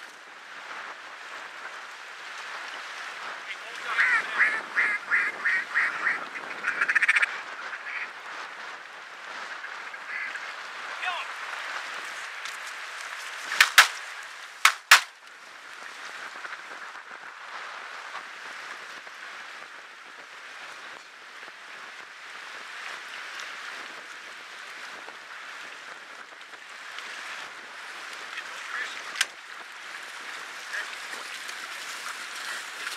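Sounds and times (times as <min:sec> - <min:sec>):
waves: 0:00.0 - 0:32.9
wind: 0:00.0 - 0:32.9
shotgun shots: 0:13.6 - 0:14.0, 0:14.7 - 0:15.1.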